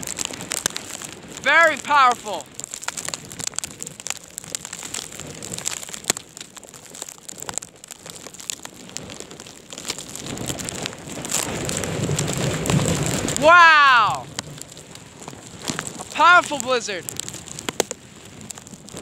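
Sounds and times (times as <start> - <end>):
snow ticking on microphone: 0.0 - 19.0.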